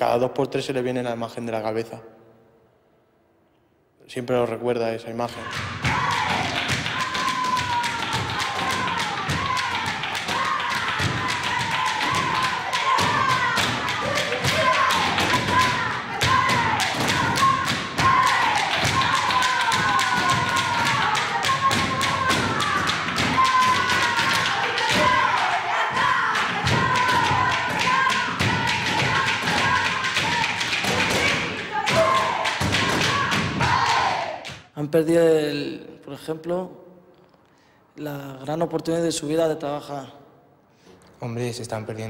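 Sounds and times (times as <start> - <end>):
group clapping hands rhythmically: 5.3 - 34.7.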